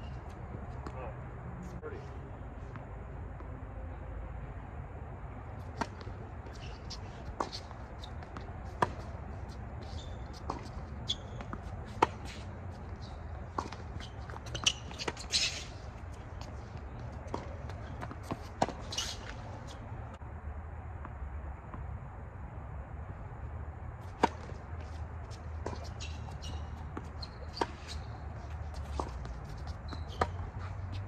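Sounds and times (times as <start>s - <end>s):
tennis ball hitting rackets: 5.5s - 20.2s, 24.0s - 31.0s.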